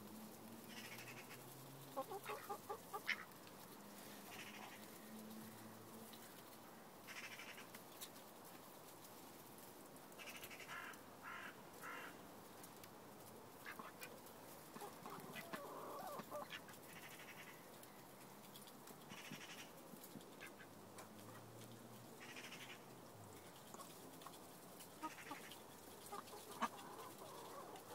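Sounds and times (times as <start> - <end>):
chicken calling: 2.0 - 3.3, 14.8 - 17.7, 25.0 - 27.9
ducks calling: 2.0 - 3.4, 14.8 - 17.6, 25.0 - 27.9
birds pecking clicks: 13.6 - 27.9.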